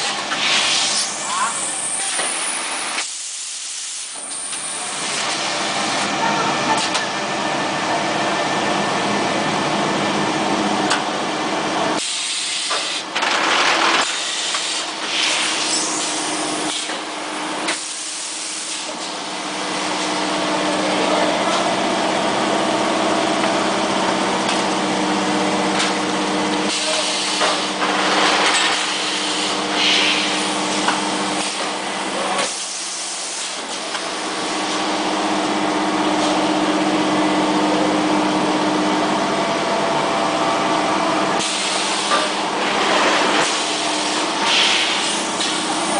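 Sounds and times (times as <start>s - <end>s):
machine humming: 15.4s - 32.4s
compressed air hiss bursts: 28.9s - 30.5s, 43.4s - 45.9s.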